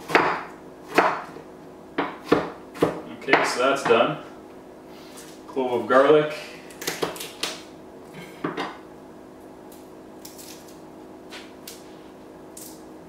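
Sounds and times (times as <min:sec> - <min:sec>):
garlic skin crackling: 0:09.7 - 0:10.8.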